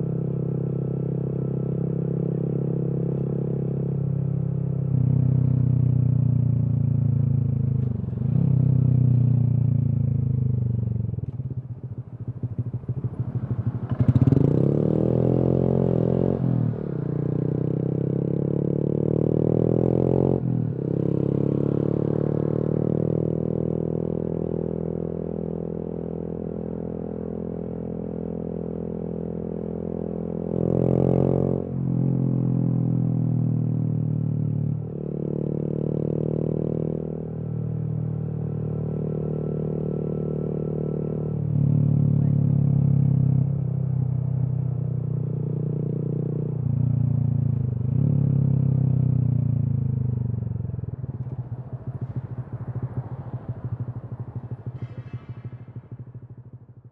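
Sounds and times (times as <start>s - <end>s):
motorcycle engine shifting gears: 50.0s - 56.8s.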